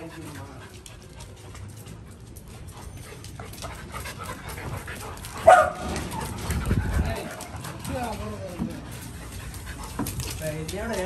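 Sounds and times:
dogs panting: 0:00.0 - 0:11.0
dog giving high cry: 0:05.3 - 0:07.8.

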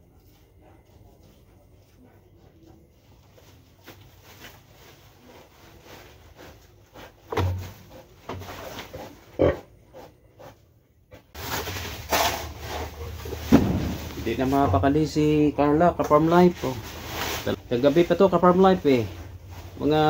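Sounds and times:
pig grunting: 0:08.9 - 0:10.1
rustling dry leaf bedding: 0:11.4 - 0:20.0.

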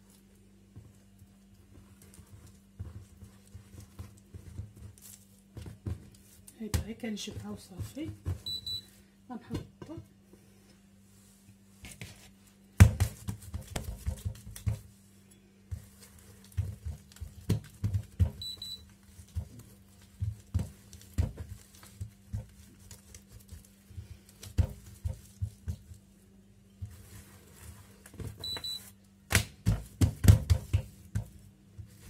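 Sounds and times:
faint low hum: 0:00.0 - 0:32.0
dough slapped on countertop: 0:12.8 - 0:14.8, 0:29.3 - 0:31.4.

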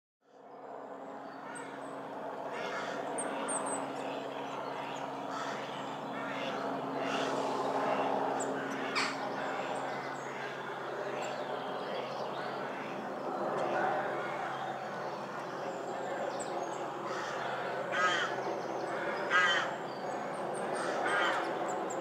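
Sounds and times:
background hum and rush: 0:00.4 - 0:22.0
birds chirping and calling: 0:01.2 - 0:01.9, 0:02.5 - 0:22.0.

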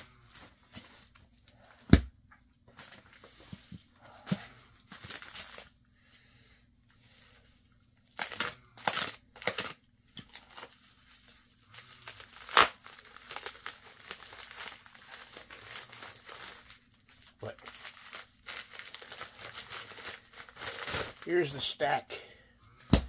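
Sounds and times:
plastic rustling: 0:02.7 - 0:06.0, 0:06.9 - 0:21.8
plastic envelope crinkling: 0:04.2 - 0:05.9, 0:06.9 - 0:21.8
plastic envelope ripping: 0:07.0 - 0:21.6.

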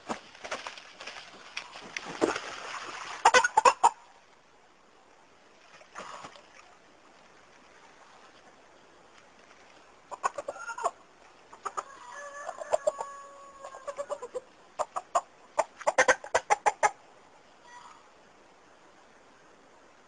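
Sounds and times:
rooster clucks: 0:03.2 - 0:04.0, 0:10.1 - 0:17.0
rooster calling: 0:11.6 - 0:14.4.

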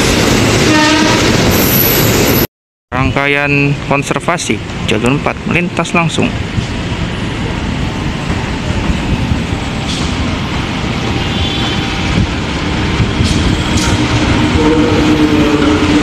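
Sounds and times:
train wheels and engine rumble: 0:03.6 - 0:16.0.

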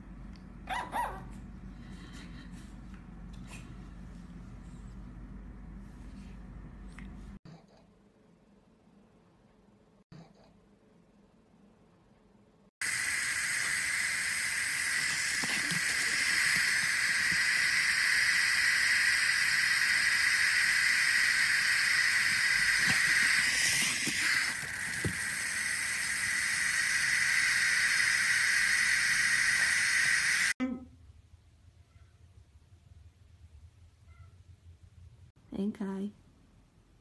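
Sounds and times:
water spray hissing: 0:12.8 - 0:30.6.

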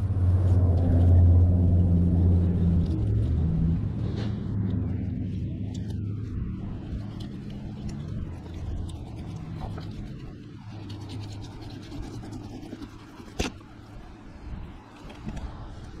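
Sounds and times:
knife scraping through fish: 0:08.4 - 0:13.7.

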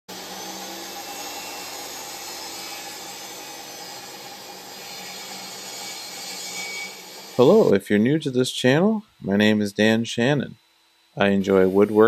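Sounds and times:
table saw cutting wood: 0:00.1 - 0:07.8, 0:10.8 - 0:12.0.

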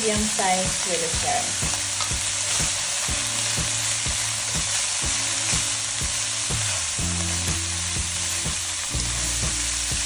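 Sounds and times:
vegetables sizzling in a pan: 0:00.0 - 0:10.0
spatula stirring in a pan: 0:01.6 - 0:08.4.

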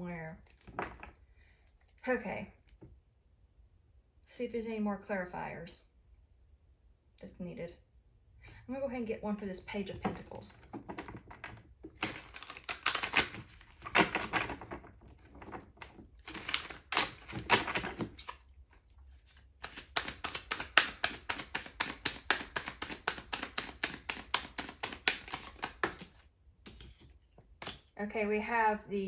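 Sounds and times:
cards clicking in overhand shuffle: 0:10.6 - 0:27.9
cards riffle shuffling: 0:10.7 - 0:27.9.

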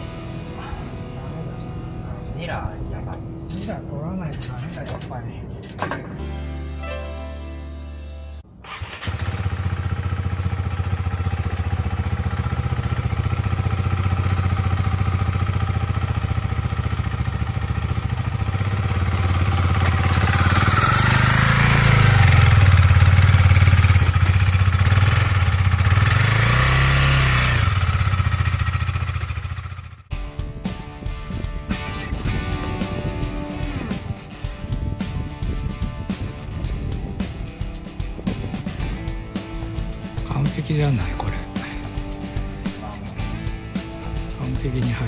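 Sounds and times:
motorcycle engine revving: 0:08.6 - 0:30.1.

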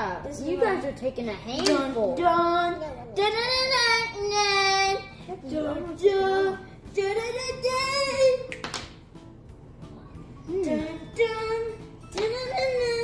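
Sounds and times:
child singing: 0:01.1 - 0:08.6, 0:10.5 - 0:13.0.

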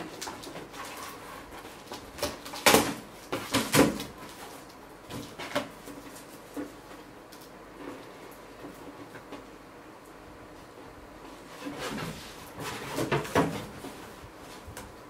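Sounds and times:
cardboard rustling: 0:00.0 - 0:07.1, 0:11.3 - 0:14.8.

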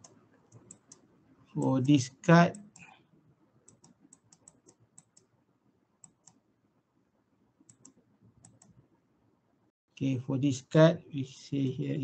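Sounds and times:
faint computer mouse clicks: 0:00.0 - 0:01.1, 0:03.7 - 0:05.3, 0:06.0 - 0:06.4, 0:07.7 - 0:08.8.

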